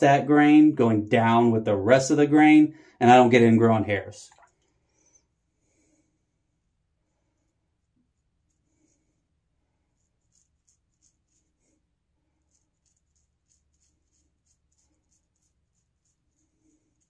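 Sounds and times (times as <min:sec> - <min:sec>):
razor scraping stubble: 0:10.1 - 0:11.6, 0:12.4 - 0:17.0.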